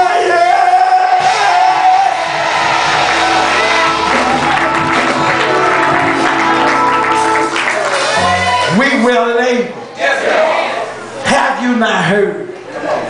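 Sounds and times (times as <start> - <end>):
congregation shouting and cheering: 0.0 - 11.1
church music sustained chords: 3.1 - 8.5.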